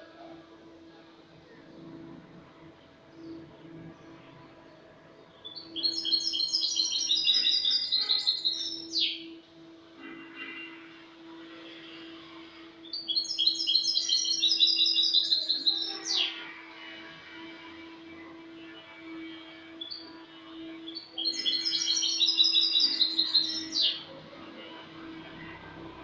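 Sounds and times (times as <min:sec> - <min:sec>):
goldfinch singing: 0:05.4 - 0:09.4, 0:12.8 - 0:16.5, 0:19.8 - 0:24.1.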